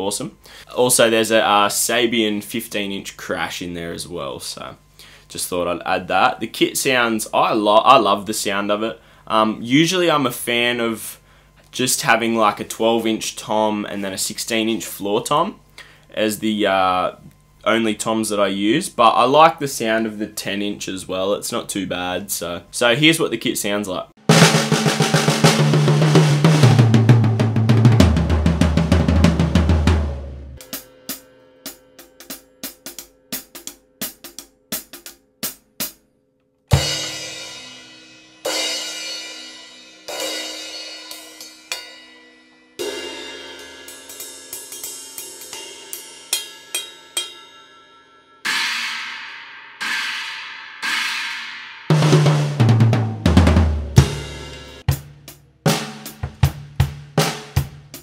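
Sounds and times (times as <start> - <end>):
tom drum fill: 24.2 - 31.2, 36.7 - 39.5, 48.5 - 58.0
crash cymbals ringing: 36.8 - 51.9.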